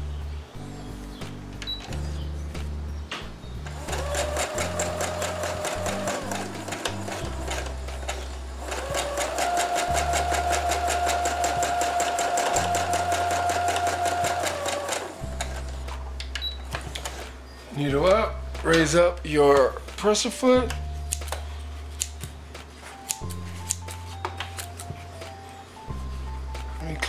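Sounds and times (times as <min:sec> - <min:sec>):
sewing machine motor whine: 0:03.8 - 0:15.4.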